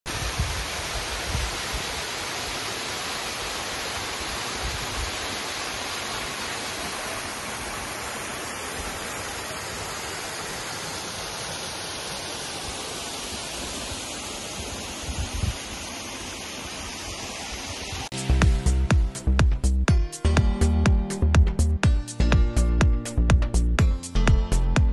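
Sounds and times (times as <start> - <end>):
waterfall and stream rushing: 0.1 - 19.4.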